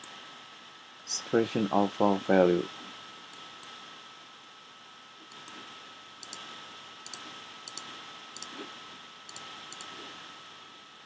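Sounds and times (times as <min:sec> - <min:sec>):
faint steady hiss: 0:00.0 - 0:11.0
computer mouse clicks: 0:05.3 - 0:05.6, 0:06.2 - 0:08.7, 0:09.3 - 0:10.1.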